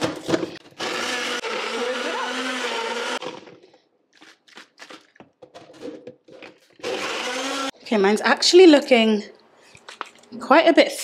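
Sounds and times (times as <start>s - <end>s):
blender motor running: 0.6s - 3.5s, 6.8s - 7.8s.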